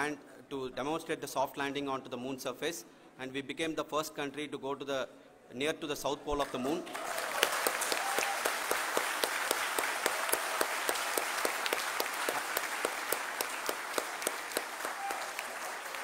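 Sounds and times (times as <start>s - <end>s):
crowd applauding: 6.5s - 16.0s.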